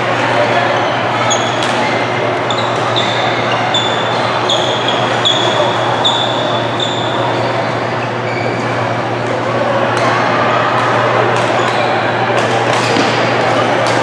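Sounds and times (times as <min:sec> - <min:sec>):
hum and murmur of hall: 0:00.0 - 0:14.0
shoes squeaking on court: 0:01.0 - 0:09.0
racket hitting shuttlecock: 0:12.4 - 0:14.0.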